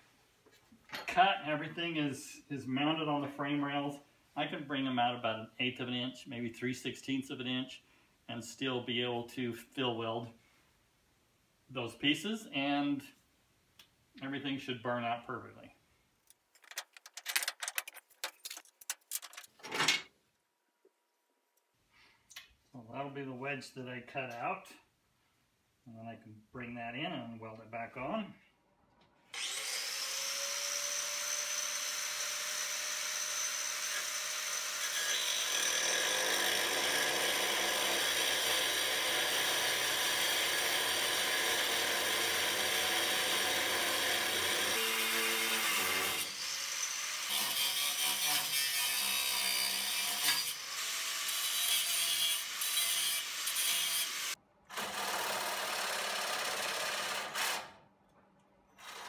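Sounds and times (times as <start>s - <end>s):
reciprocating saw cutting steel: 29.3s - 54.9s
angle grinder cutting steel: 29.4s - 54.4s.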